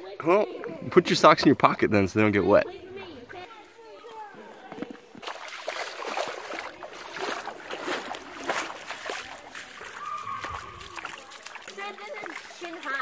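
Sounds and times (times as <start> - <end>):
bare feet splashing through water: 4.1 - 13.0.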